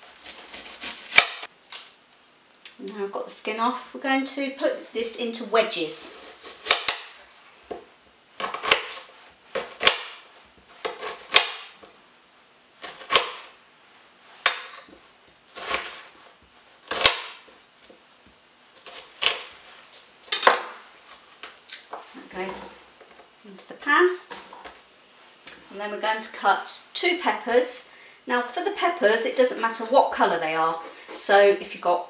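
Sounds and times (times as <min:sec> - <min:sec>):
knife chopping onion on board: 0:06.2 - 0:07.1, 0:10.8 - 0:11.8, 0:12.8 - 0:13.5.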